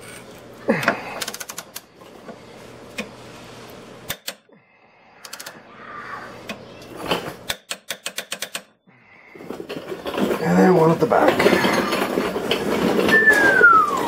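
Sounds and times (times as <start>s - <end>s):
torque wrench ratcheting clicks: 5.2s - 5.6s.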